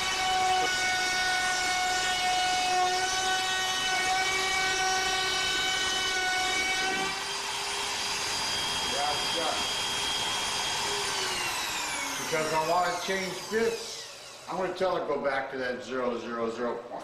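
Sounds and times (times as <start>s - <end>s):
router spindle whining: 0.0s - 15.0s.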